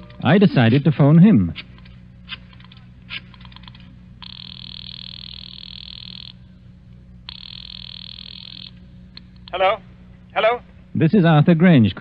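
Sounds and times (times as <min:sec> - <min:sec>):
low steady hum: 0:00.0 - 0:12.0
buzzing telephone ring: 0:03.4 - 0:09.1.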